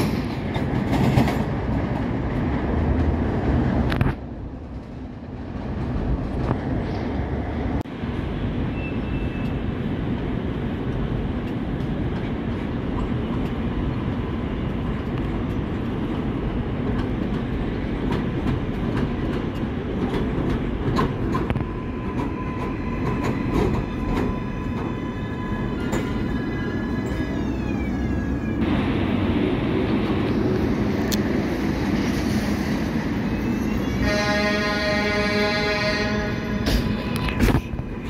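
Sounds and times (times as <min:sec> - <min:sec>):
wheels clicking over rail joints: 0:00.0 - 0:06.7, 0:10.2 - 0:28.7
subway train rumbling: 0:00.0 - 0:38.0.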